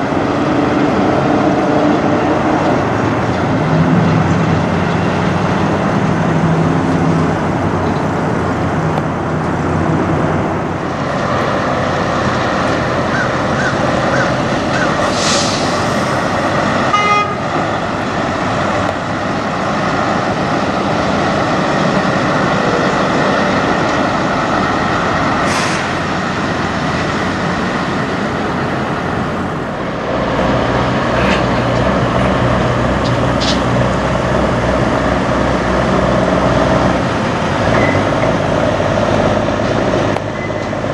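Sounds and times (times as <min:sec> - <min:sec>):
approaching truck engine: 0:00.0 - 0:40.9
truck diesel engines: 0:00.0 - 0:40.9
air brake hisses: 0:15.0 - 0:16.0, 0:25.4 - 0:25.9.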